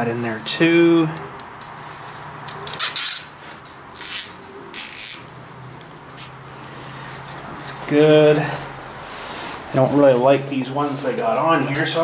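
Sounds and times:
zip ties ratcheting tight: 2.5 - 5.3.

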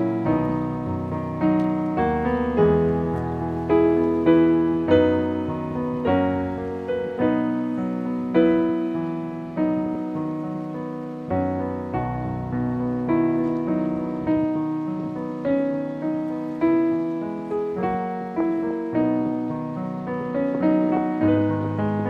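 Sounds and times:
slow piano music: 0.0 - 22.0.

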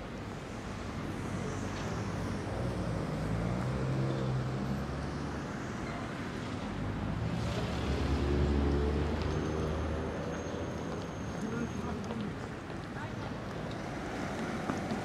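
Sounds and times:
cars driving past: 6.5 - 11.9.

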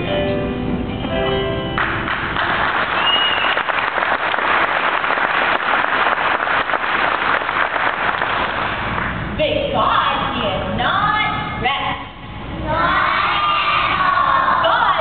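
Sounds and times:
crowd applauding: 1.8 - 9.2.

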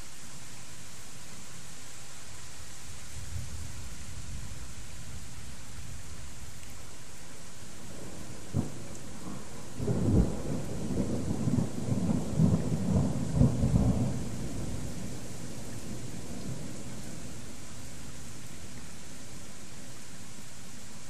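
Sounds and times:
heavy rain hiss: 0.0 - 21.0
thunder crack and rumble: 8.0 - 15.3.

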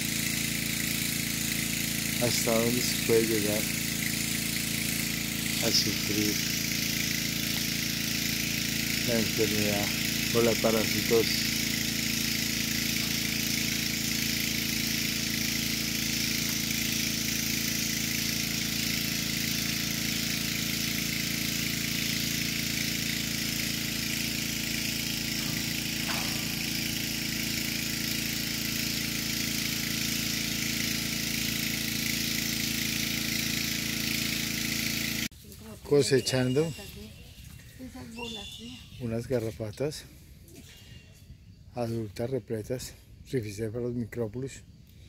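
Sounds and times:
motor hum with high hiss: 0.0 - 45.0.

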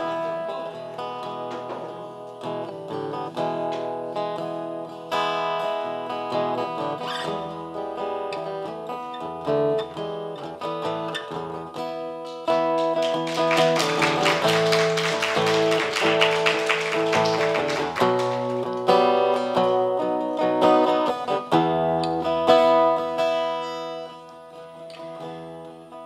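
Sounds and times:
acoustic guitar playing: 0.0 - 26.0.

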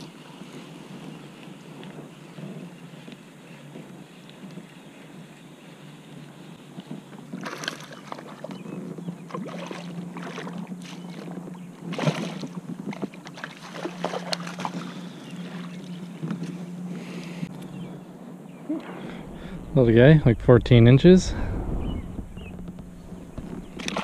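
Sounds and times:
water splashing around kayak: 7.2 - 17.5, 22.6 - 24.0.

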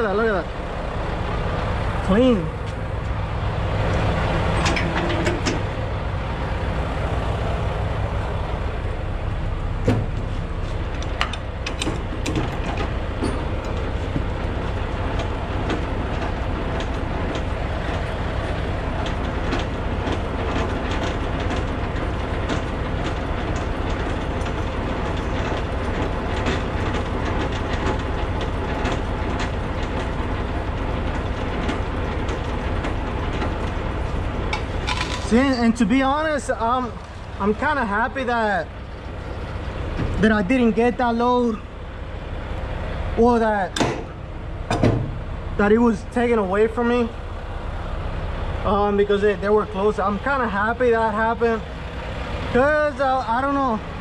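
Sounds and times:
diesel engine idling: 0.0 - 54.0
metallic clicks and clanks: 4.5 - 5.7, 10.9 - 13.9.

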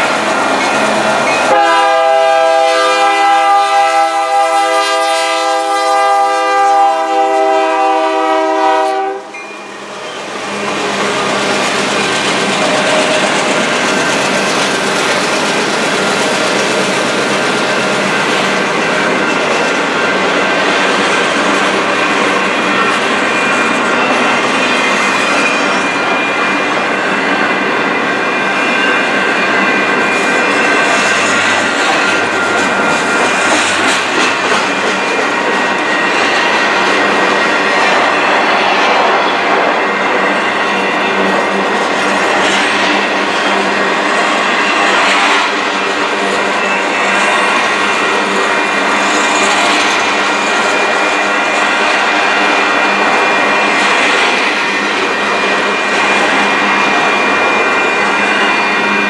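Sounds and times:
steel wheels clattering on rails: 0.0 - 3.2, 9.7 - 59.0
thin high ringing tone: 9.3 - 10.4.

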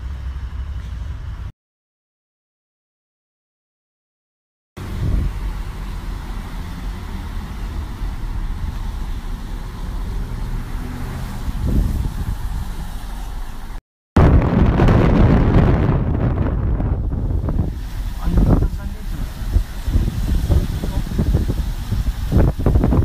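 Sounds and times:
car road noise rumble: 0.0 - 1.5, 4.8 - 23.0
wind rushing on microphone: 4.8 - 23.0.

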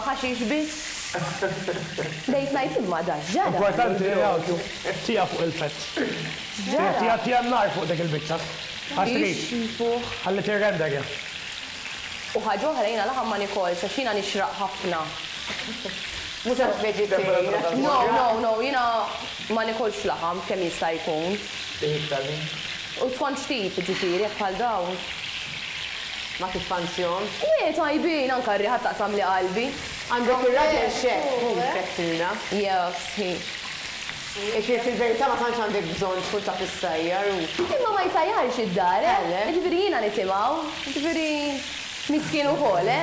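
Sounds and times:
food sizzling in frying pan: 0.0 - 43.0
person talking: 8.9 - 9.7, 16.5 - 18.5.

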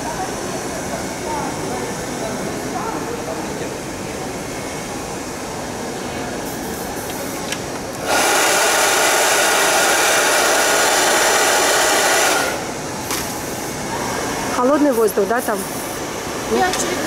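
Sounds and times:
hair dryer blowing with whine: 7.6 - 17.0.

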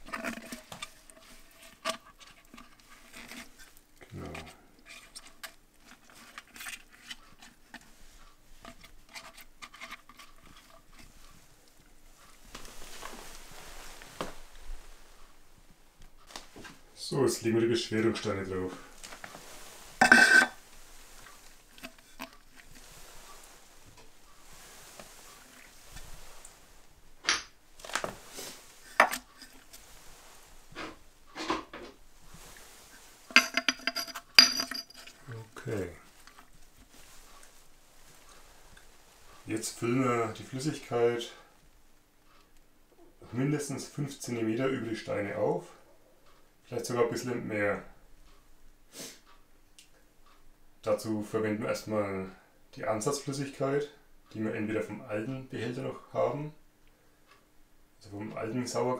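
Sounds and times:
wet leaves rustling and crackling: 0.0 - 15.5, 16.2 - 31.4, 32.0 - 33.3, 35.1 - 41.5
stones knocking and scraping on crock: 19.0 - 20.6, 27.2 - 29.7
ringing ceramic clinks: 20.0 - 20.6, 33.4 - 35.1.

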